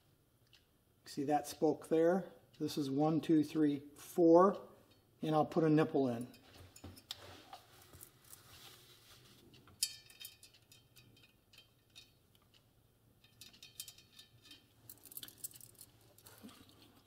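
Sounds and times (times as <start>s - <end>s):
faint metallic clicks of spokes: 9.4s - 17.0s.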